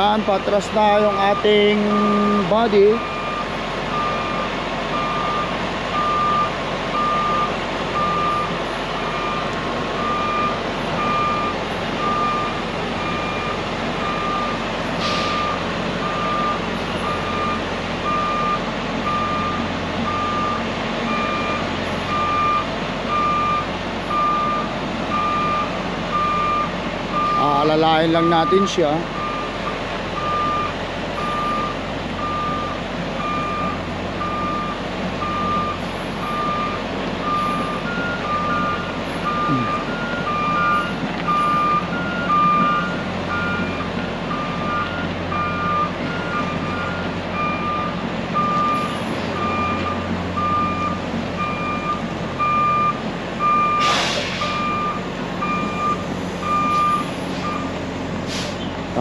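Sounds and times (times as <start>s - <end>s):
truck backup alarm beeping: 0.0s - 59.0s
truck engine running: 0.0s - 59.0s
higher-pitched backup alarm: 0.8s - 57.8s
short hiss: 15.0s - 15.4s, 53.8s - 54.6s, 58.3s - 58.6s.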